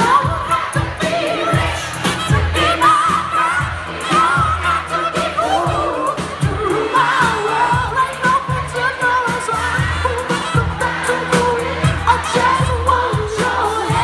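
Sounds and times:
drum beat: 0:00.0 - 0:14.0
faint crowd: 0:00.0 - 0:14.0
live rock band playing: 0:00.0 - 0:14.0
person singing lead vocal: 0:00.0 - 0:14.0.

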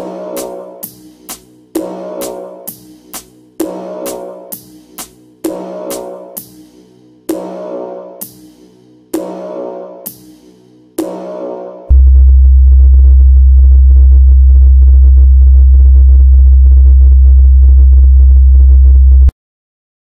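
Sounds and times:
psytrance music on synthesizers: 0:00.0 - 0:12.1.

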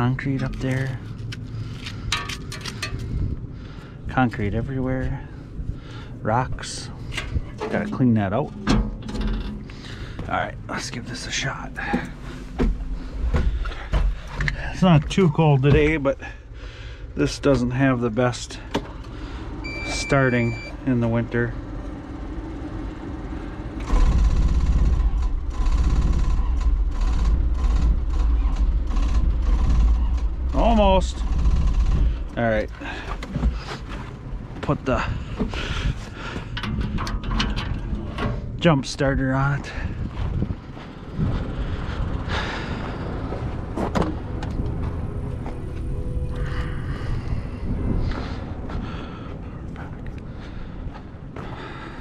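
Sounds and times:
steady low rumble: 0:00.0 - 0:52.0
diesel engine cranking on starter: 0:05.2 - 0:38.7, 0:39.4 - 0:45.5.

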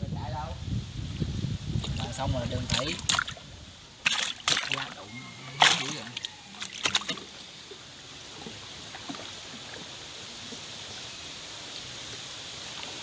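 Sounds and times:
water lapping around boat hull: 0:01.8 - 0:10.9.

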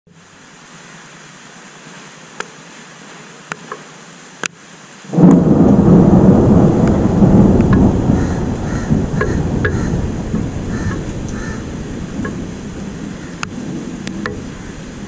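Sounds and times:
faint steady hiss: 0:00.1 - 0:15.0
thunder rumbling: 0:05.1 - 0:15.0.

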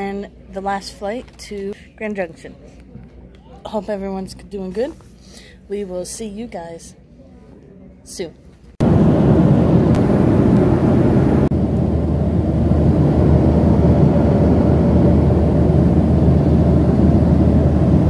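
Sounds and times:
faint hum: 0:08.8 - 0:18.0
jet airliner cabin rumble: 0:08.8 - 0:18.0.

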